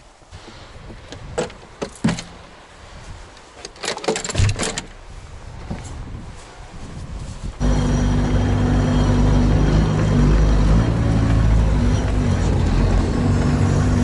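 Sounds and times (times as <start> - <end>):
sharp clicks and knocks: 3.6 - 5.0.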